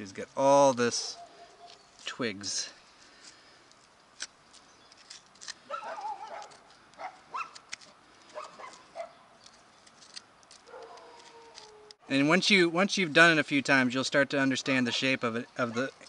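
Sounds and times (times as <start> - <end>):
hoof pick scraping hoof: 4.6 - 12.0.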